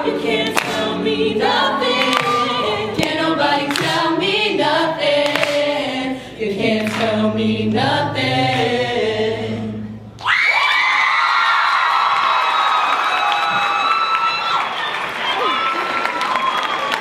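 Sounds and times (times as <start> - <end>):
group singing in harmony: 0.0 - 10.2.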